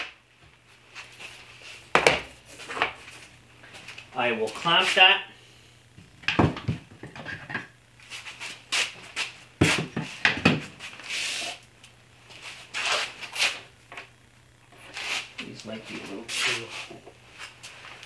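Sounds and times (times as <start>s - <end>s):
scraping rub: 10.8s - 11.6s, 12.3s - 13.6s, 14.8s - 15.4s.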